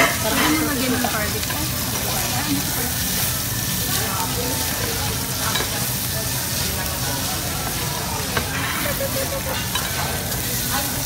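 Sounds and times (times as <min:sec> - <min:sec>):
metal tongs clicking on pan: 0:00.0 - 0:01.7, 0:05.5 - 0:05.8, 0:09.5 - 0:10.1
meat sizzling in grill pan: 0:00.0 - 0:11.0.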